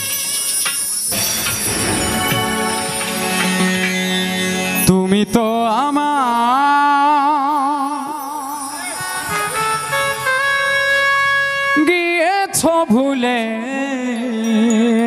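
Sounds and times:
folk instrumental backing with drone: 0.0 - 6.4, 8.5 - 14.1
man singing long held note: 2.5 - 15.0.

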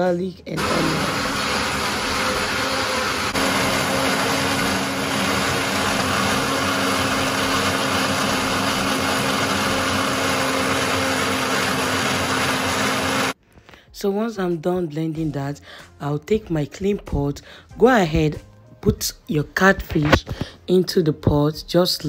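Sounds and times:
blender motor running: 0.6 - 13.4.

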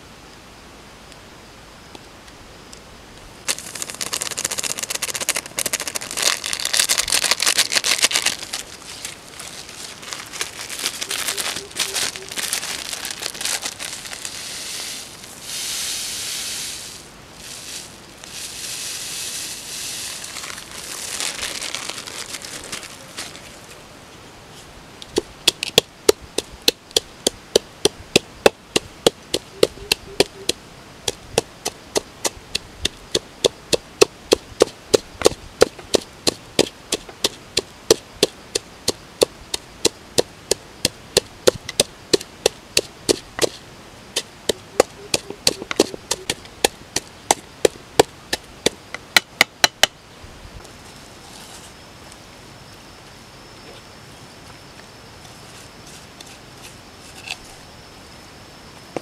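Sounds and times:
pestle pounding in a bowl: 44.2 - 49.9.

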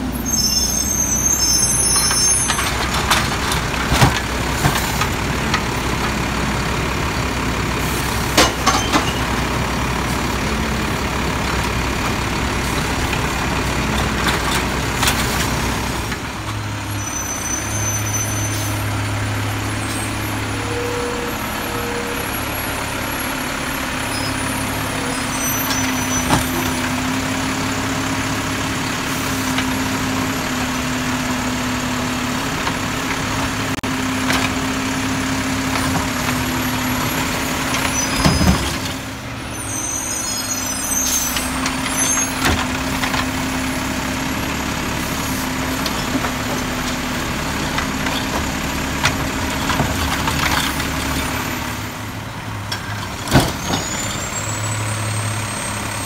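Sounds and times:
truck engine and hydraulics whining: 0.0 - 56.0
air brakes hissing: 17.0 - 18.9.

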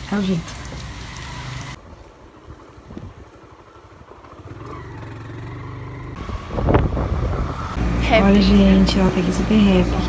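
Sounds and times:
motorcycle engine idling: 3.7 - 6.3.

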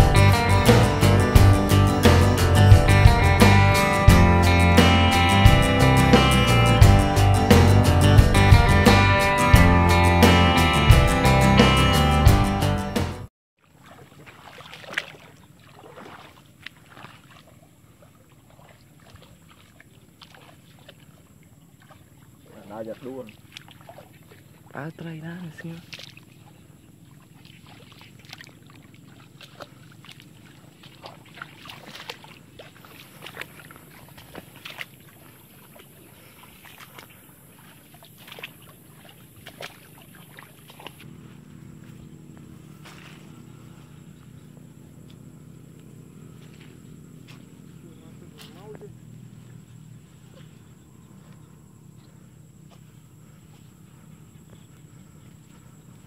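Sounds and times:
footsteps through wet grass: 13.6 - 24.9, 25.6 - 51.6.

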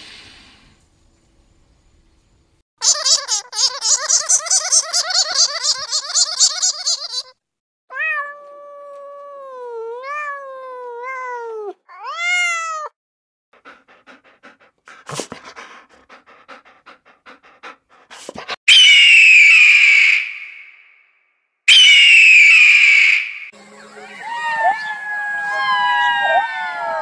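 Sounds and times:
eagle screaming: 2.8 - 7.3, 18.7 - 20.6, 21.7 - 23.3, 23.9 - 27.0
cat meowing: 7.9 - 13.0.

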